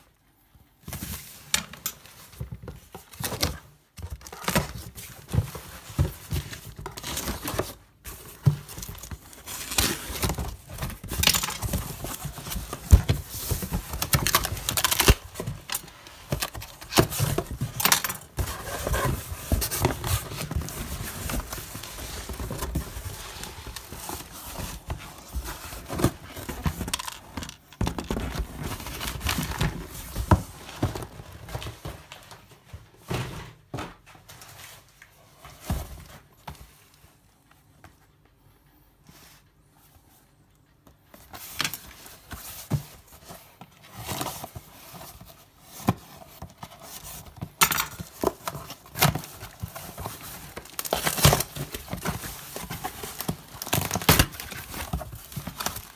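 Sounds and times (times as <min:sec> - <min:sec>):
cardboard box rustling and scraping: 0:02.7 - 0:27.0.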